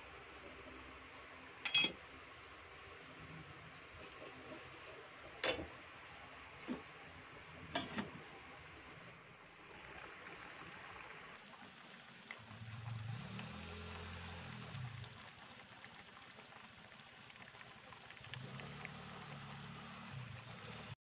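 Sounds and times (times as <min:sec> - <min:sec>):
broth bubbling at a simmer: 0:00.0 - 0:21.0
cookware clinking: 0:01.6 - 0:02.0, 0:07.8 - 0:08.1.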